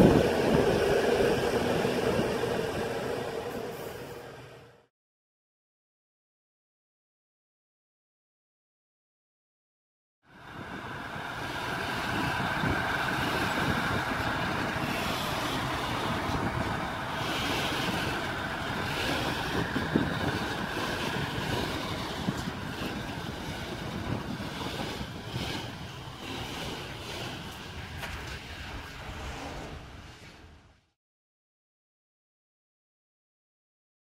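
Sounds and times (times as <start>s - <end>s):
diesel locomotive running: 0.0s - 4.9s, 10.3s - 30.0s
wagon wheels clicking on track: 11.6s - 28.6s.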